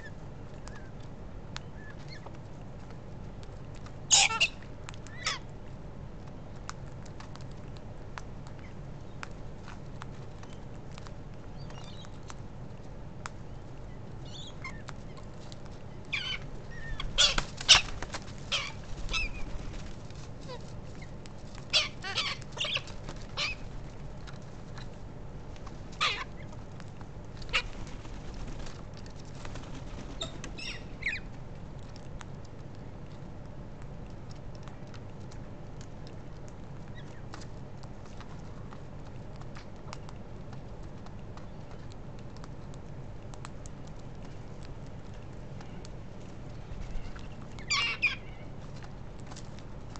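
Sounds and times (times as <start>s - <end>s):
birds screeching: 4.1s - 5.5s, 16.0s - 19.9s, 21.7s - 23.7s, 26.0s - 26.4s, 27.4s - 28.0s, 30.1s - 31.3s, 46.8s - 48.5s
thin bird chirps: 30.2s - 31.3s.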